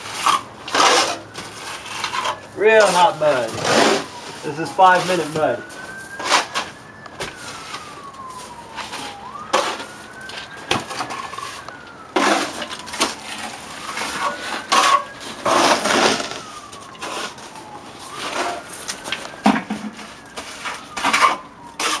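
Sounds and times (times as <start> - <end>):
siren wailing: 0.0 - 22.0
trowel scraping and slapping plaster: 0.1 - 4.4.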